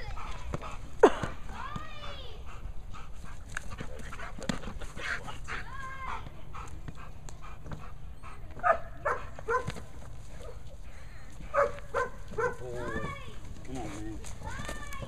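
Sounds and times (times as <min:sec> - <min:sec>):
dog barking: 0:08.6 - 0:09.8, 0:11.5 - 0:12.7.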